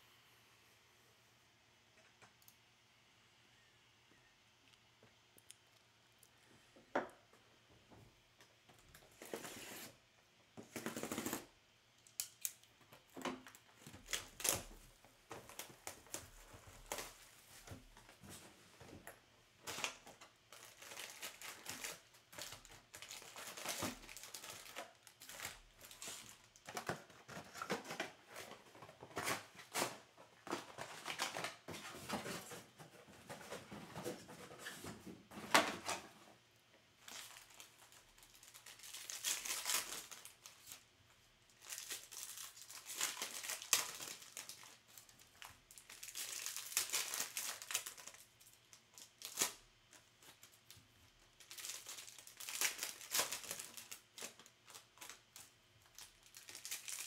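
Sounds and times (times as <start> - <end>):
plastic wrap crinkling and tearing: 10.6 - 11.5, 13.3 - 18.3, 18.9 - 32.7, 37.0 - 40.9, 41.5 - 57.0.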